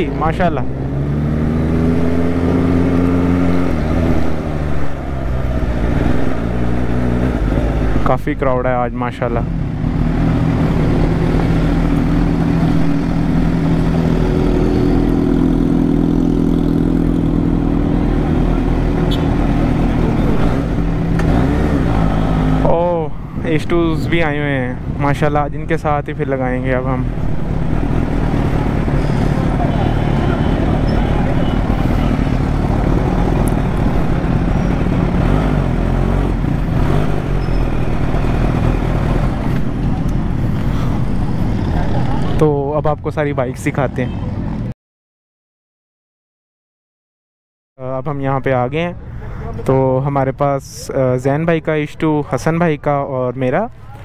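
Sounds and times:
motorcycle engine running at low revs: 9.5s - 22.7s.

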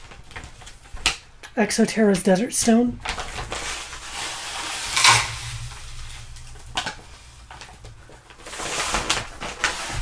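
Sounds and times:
sand pouring into plastic bin: 3.6s - 6.2s.

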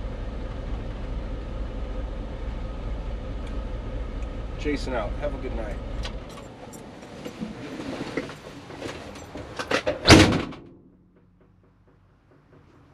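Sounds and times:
truck engine rumble: 0.0s - 12.9s
cab door slamming: 9.4s - 10.8s.

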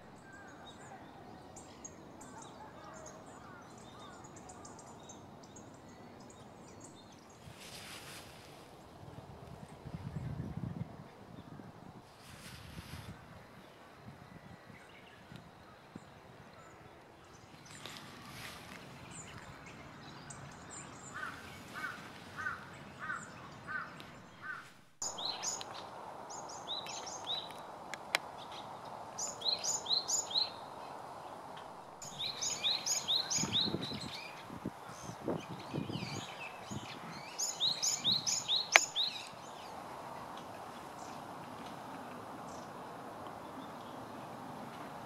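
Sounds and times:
sharp tick: 38.7s - 38.9s.

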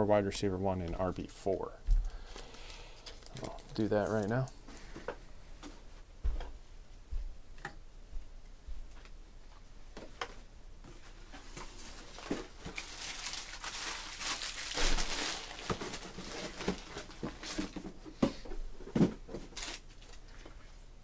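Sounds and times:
rustling: 10.8s - 18.0s.

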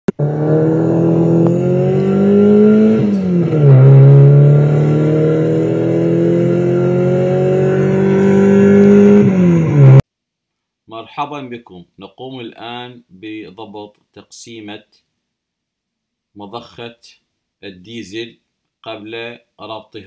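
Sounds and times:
car engine accelerating hard: 0.1s - 10.0s.

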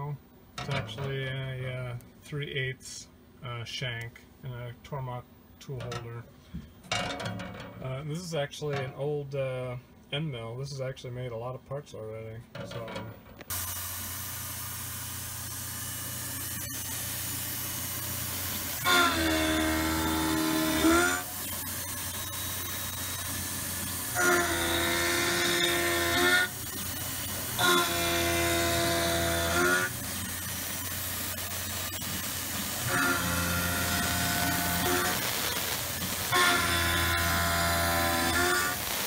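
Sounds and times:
milling machine cutting hum: 13.0s - 39.0s
high-pitched cutting squeal: 18.8s - 23.3s, 27.6s - 30.0s, 32.8s - 39.0s.

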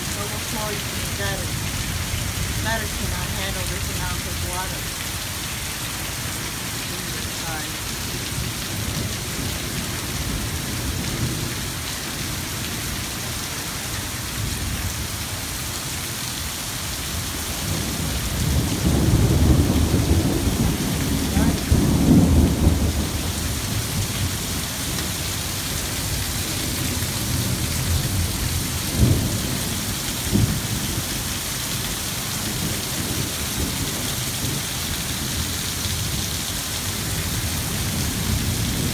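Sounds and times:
torrential rain pouring: 0.0s - 38.9s
rolling thunder: 17.6s - 25.2s, 26.0s - 31.3s, 36.9s - 38.9s.

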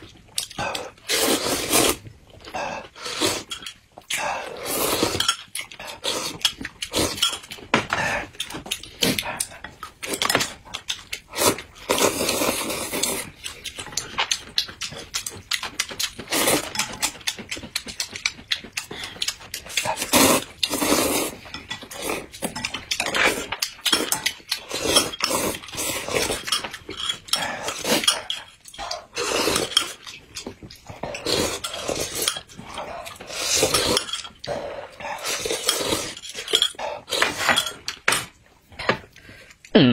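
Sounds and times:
people slurping noodles: 0.4s - 13.4s, 16.2s - 17.2s, 19.6s - 26.5s, 27.3s - 30.1s, 30.9s - 37.8s
utensils clinking on bowls: 19.8s - 39.0s.

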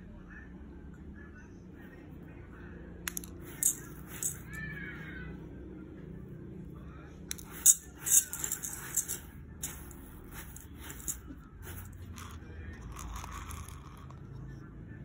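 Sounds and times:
fingers sifting dry rice: 7.3s - 13.9s.

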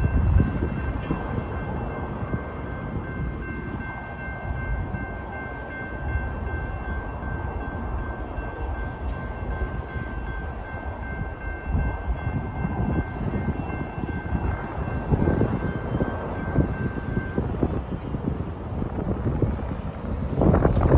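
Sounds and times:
crossing bell ringing: 0.0s - 20.5s
freight train cars rumbling: 0.0s - 20.9s
wind gusts on microphone: 0.0s - 20.9s.

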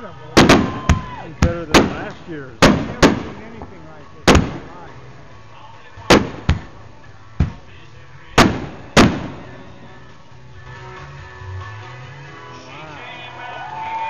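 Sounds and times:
fireworks bangs: 0.0s - 5.2s, 6.0s - 10.1s.

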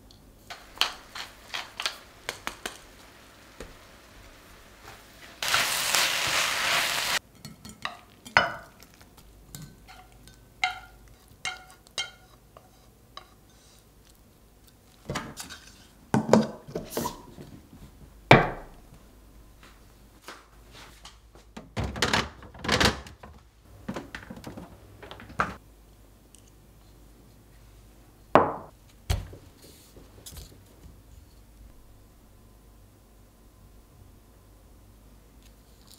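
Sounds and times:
food sizzling in a frying pan: 0.5s - 7.2s.

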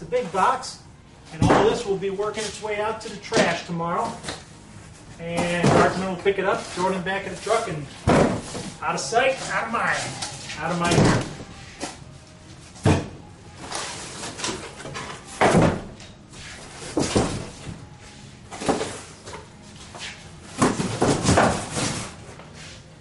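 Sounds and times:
cardboard pieces knocking in box: 20.6s - 22.0s.

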